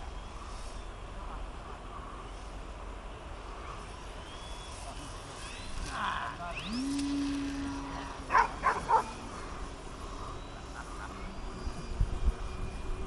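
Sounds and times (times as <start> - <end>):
rising hum: 5.3 - 13.0
dog barking: 8.3 - 9.2.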